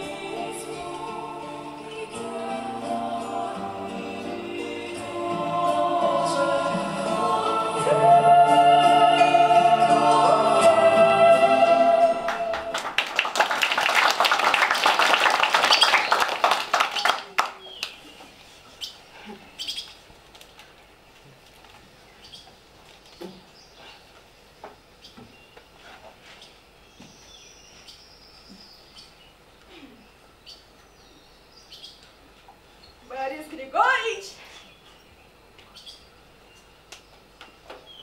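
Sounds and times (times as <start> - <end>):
choir singing chords: 0.0 - 13.0.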